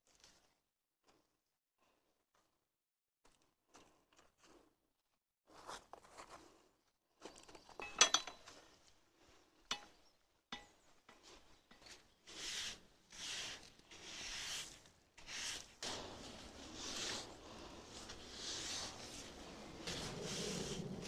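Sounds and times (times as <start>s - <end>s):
garden tools clinking: 7.8s - 8.7s
rough scraping strokes: 11.2s - 21.0s.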